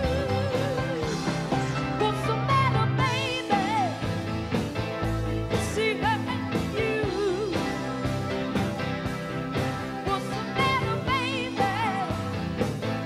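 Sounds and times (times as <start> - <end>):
woman singing with vibrato: 0.0 - 4.2, 5.6 - 8.0, 10.0 - 12.5
rock band playing: 0.0 - 13.0.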